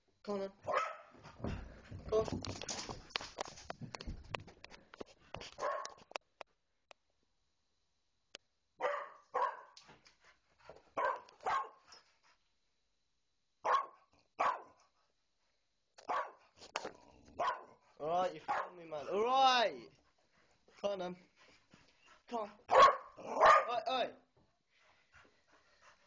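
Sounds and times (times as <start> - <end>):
dog barking: 0.7 - 1.1, 5.6 - 6.0, 8.8 - 9.8, 11.0 - 11.8, 13.6 - 14.8, 16.0 - 16.4, 17.4 - 17.8, 18.5 - 18.8, 22.7 - 23.9.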